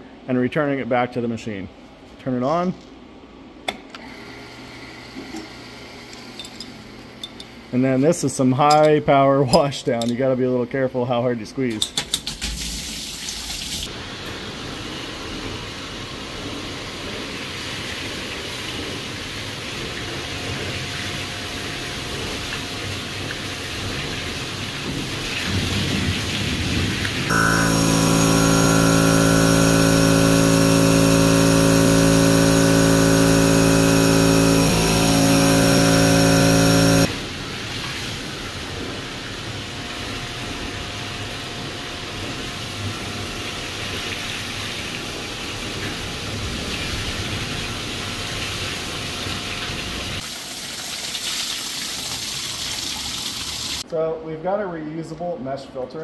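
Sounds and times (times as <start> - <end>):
loud machine hum: 27.3 - 37.4.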